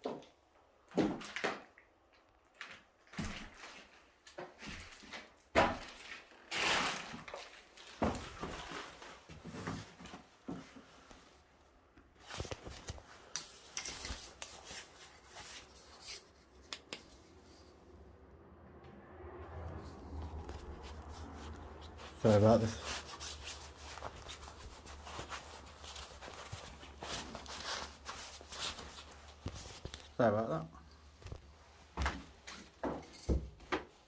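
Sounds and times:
irregular scrapes and rubs: 12.2 - 18.0, 19.6 - 30.2.

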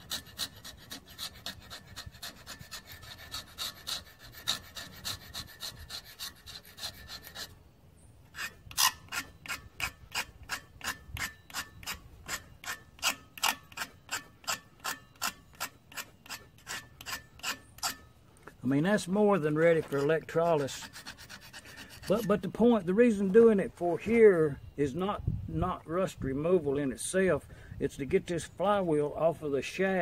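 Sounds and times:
scraper blade scraping rust: 0.0 - 7.6, 8.3 - 18.2, 18.9 - 22.8.

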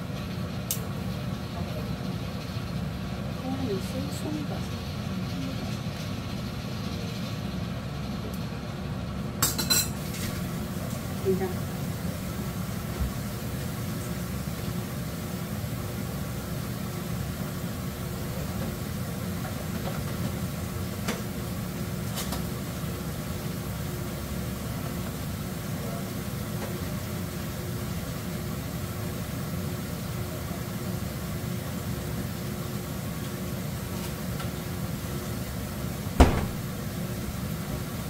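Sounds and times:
appliance fan-like hum: 0.0 - 38.0.

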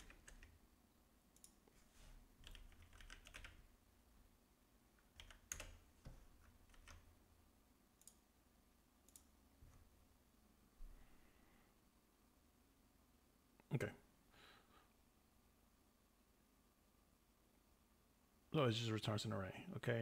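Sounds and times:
faint keyboard typing: 0.0 - 0.6, 1.3 - 3.7, 4.9 - 7.4, 8.0 - 8.3, 9.0 - 9.9.

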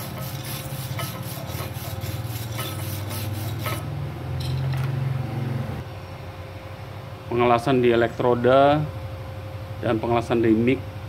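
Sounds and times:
wire brush scraping steel: 0.0 - 3.9.

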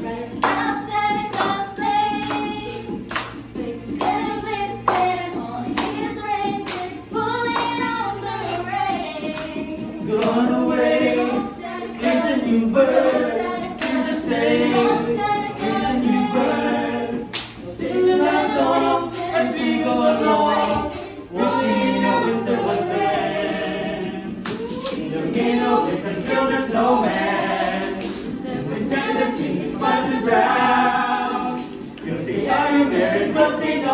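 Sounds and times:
group singing a cappella: 0.0 - 33.9
sharp claps or snaps: 0.3 - 8.6, 9.2 - 11.4, 13.7 - 14.2, 17.3 - 17.7, 23.5 - 25.1, 27.1 - 28.6, 30.5 - 33.5.

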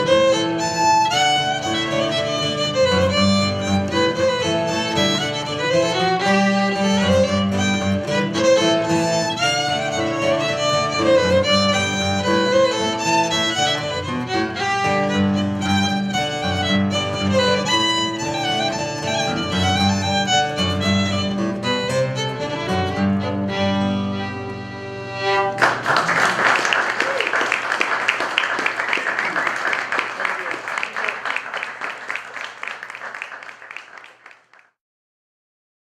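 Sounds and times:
fiddle: 0.0 - 25.8
acoustic guitar: 0.0 - 26.1
applause: 25.6 - 34.8.

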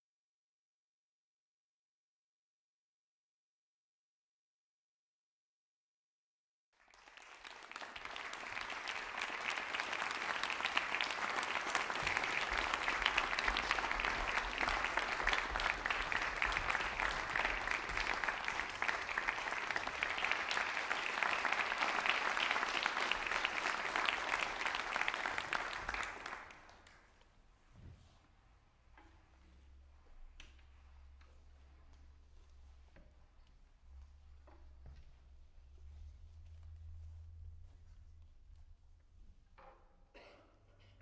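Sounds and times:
audience applauding: 6.8 - 27.2.

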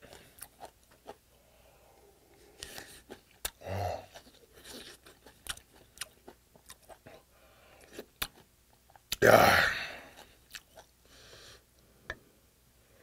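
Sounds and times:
close chewing of rice: 0.0 - 1.2, 2.4 - 9.2, 10.0 - 11.0.

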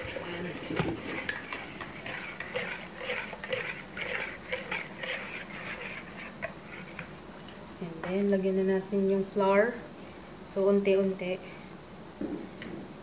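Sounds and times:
whisk beating in a bowl: 0.0 - 7.2.

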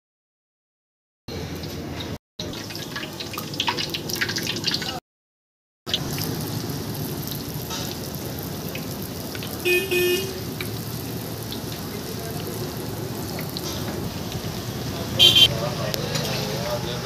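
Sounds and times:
hot oil sizzling: 1.3 - 5.0, 5.9 - 17.0.

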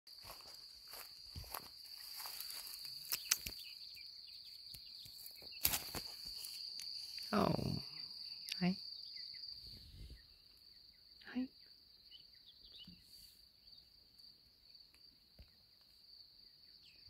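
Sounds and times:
footsteps rustling through grass: 0.1 - 3.6, 5.6 - 7.3
insects chirring: 0.1 - 17.0.

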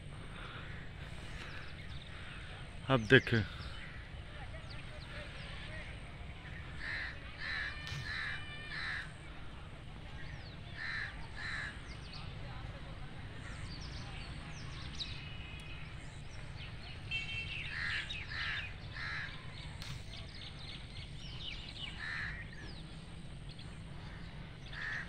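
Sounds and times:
crows cawing: 6.7 - 9.3, 10.8 - 11.8, 17.7 - 19.6, 21.8 - 22.7, 24.0 - 25.0
small birds chirping: 10.0 - 25.0.

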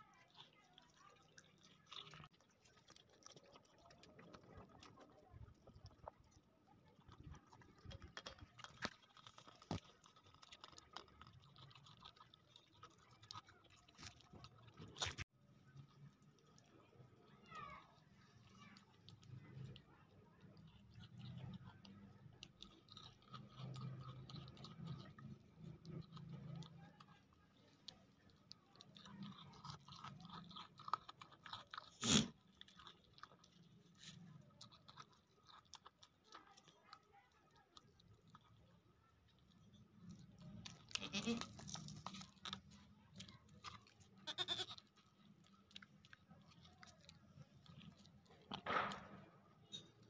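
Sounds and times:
goat chewing watermelon: 0.0 - 50.0.

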